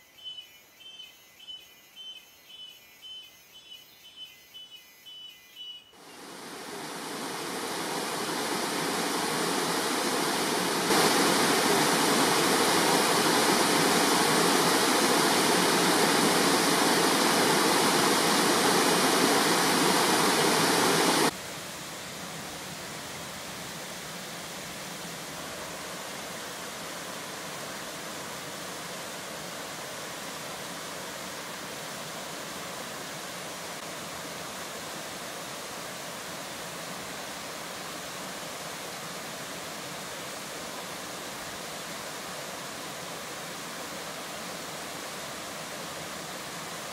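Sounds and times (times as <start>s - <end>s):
waterfall rushing: 6.0s - 21.4s.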